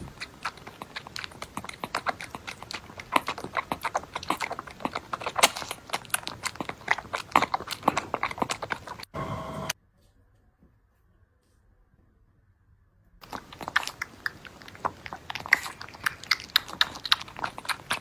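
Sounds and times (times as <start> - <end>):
kitten suckling with clicking smacks: 0.0 - 9.1, 13.2 - 18.0
brief steady tone: 9.2 - 9.8.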